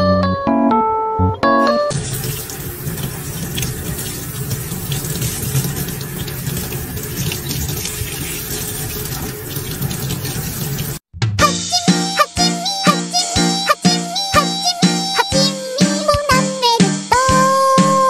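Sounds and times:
piano notes: 0:00.0 - 0:02.1, 0:11.4 - 0:16.6
faucet running into a sink: 0:01.9 - 0:11.0.

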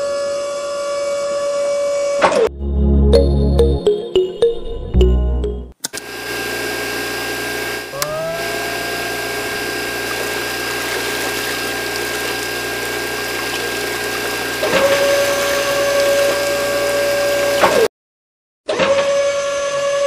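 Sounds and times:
motor spinning up whine: 0:06.0 - 0:17.9
small electric motors whirring: 0:07.5 - 0:17.9
water pouring from hose: 0:08.5 - 0:17.7.

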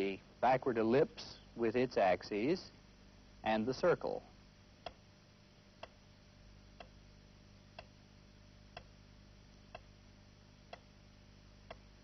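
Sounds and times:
low steady hum: 0:00.0 - 0:12.0
faint timer ticks: 0:04.8 - 0:05.0, 0:05.8 - 0:06.0, 0:06.7 - 0:07.0, 0:07.7 - 0:08.0, 0:08.7 - 0:09.0, 0:09.6 - 0:10.0, 0:10.6 - 0:11.0, 0:11.6 - 0:12.0.

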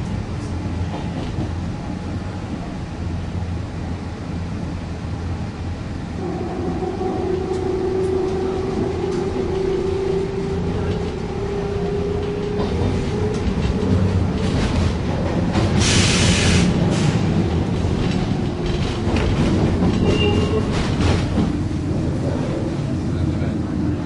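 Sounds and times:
train wheels rumbling on rail: 0:00.0 - 0:24.0
loud hiss: 0:15.8 - 0:17.2.

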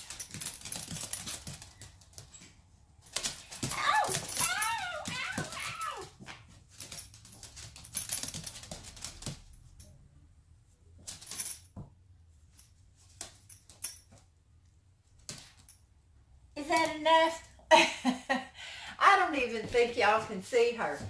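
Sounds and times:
dog claws scrambling on hard floor: 0:00.0 - 0:09.5.

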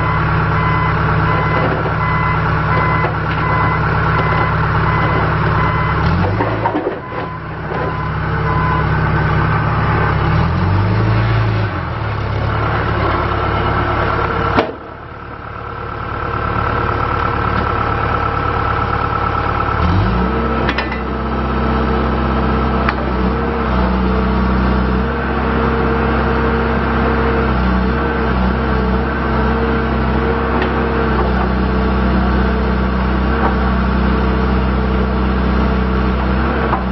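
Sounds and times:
reverse alarm beeping: 0:00.0 - 0:06.1, 0:07.0 - 0:09.0
engine revving up: 0:00.0 - 0:07.3, 0:07.9 - 0:14.5, 0:19.7 - 0:36.9
diesel engine running: 0:00.0 - 0:36.9.

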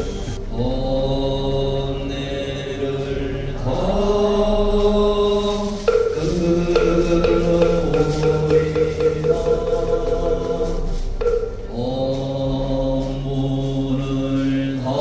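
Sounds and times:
monk chanting in long notes: 0:00.4 - 0:15.0.

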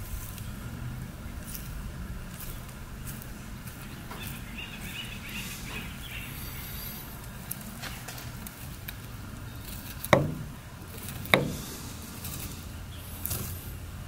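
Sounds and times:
low background rumble: 0:00.0 - 0:14.0
knife knocking on wooden board: 0:10.2 - 0:10.5, 0:11.4 - 0:11.6.

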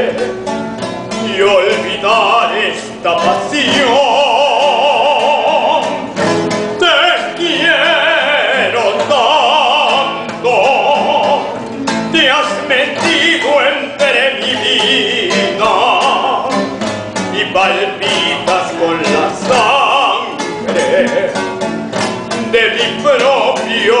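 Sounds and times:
man singing: 0:00.0 - 0:21.6, 0:22.2 - 0:24.0
classical guitar: 0:00.0 - 0:24.0.

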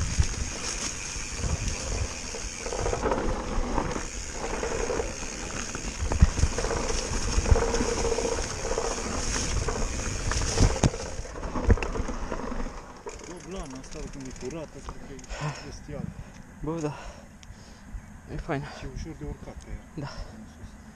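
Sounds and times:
bike rattling: 0:00.0 - 0:17.2
bike tyres rolling on dirt: 0:00.0 - 0:17.8.

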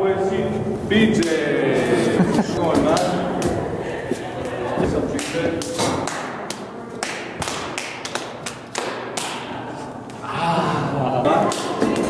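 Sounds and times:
hands slapping and clapping: 0:05.2 - 0:09.5, 0:11.4 - 0:12.0.

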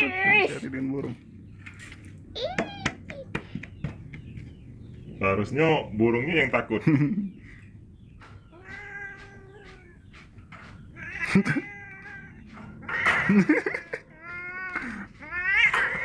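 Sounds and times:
cat meowing and yowling: 0:08.5 - 0:10.0, 0:10.9 - 0:13.2, 0:13.8 - 0:16.0.

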